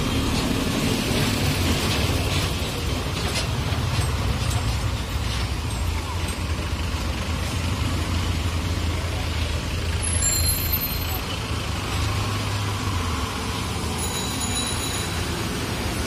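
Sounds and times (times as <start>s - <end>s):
heavy vehicle engine rumbling: 0.0s - 16.0s
high-pitched ringing tone: 14.0s - 15.5s.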